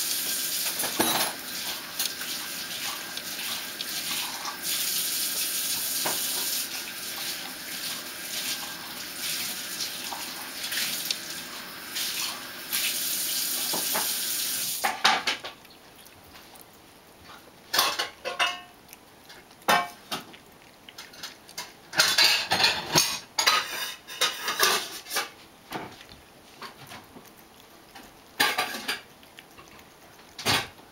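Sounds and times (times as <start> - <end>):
steady hiss: 0.0 - 15.0
cat crunching dry kibble: 14.9 - 30.9.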